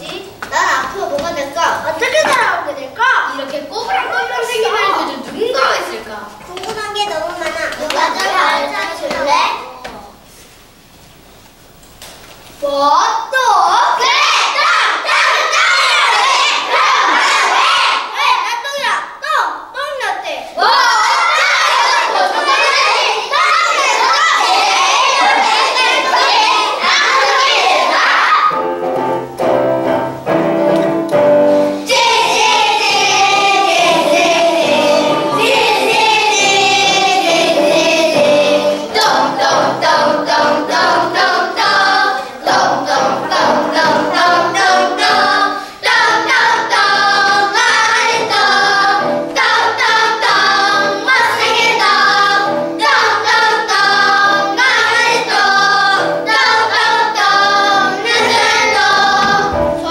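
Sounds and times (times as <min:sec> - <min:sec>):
children's choir singing: 0:13.7 - 0:18.7, 0:20.6 - 0:59.9.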